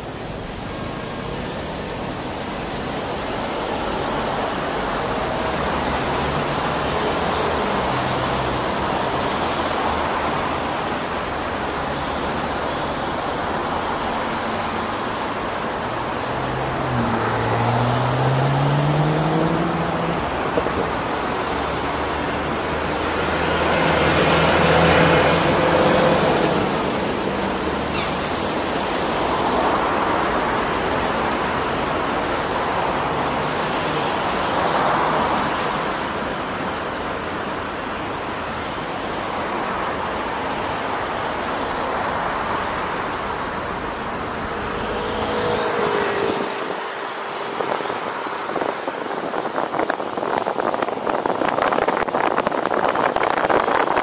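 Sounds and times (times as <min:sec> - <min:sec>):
road noise rush: 0:00.0 - 0:54.0
vehicle engine accelerating: 0:16.4 - 0:20.8
vehicle passing close by: 0:16.5 - 0:22.2.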